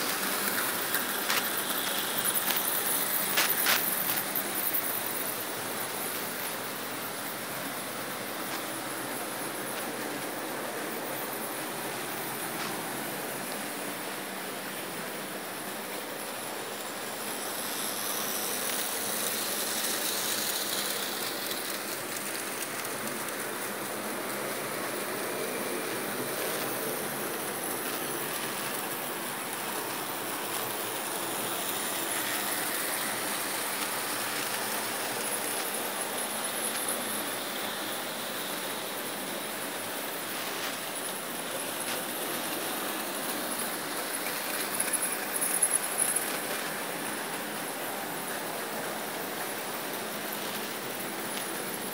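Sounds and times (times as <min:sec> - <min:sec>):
model trains clattering on track: 0:00.0 - 0:51.9.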